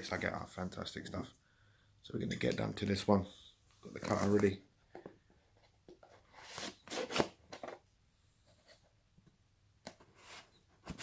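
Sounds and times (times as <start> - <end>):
box cutter slicing packing tape: 6.5 - 7.4.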